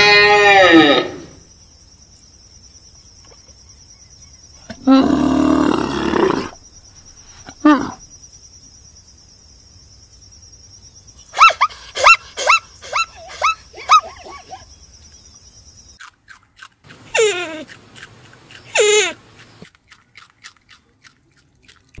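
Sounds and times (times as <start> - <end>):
short yelping animal calls: 11.3 - 14.6.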